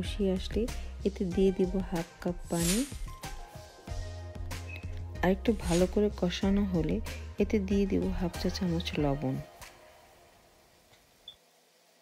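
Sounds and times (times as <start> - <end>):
faint room hiss: 6.9 - 12.0.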